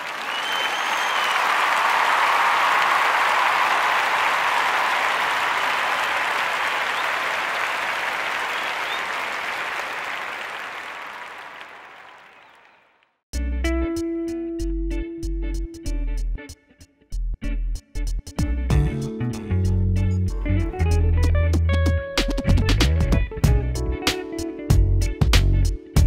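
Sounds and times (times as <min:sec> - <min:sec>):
crowd applauding: 0:00.0 - 0:13.2.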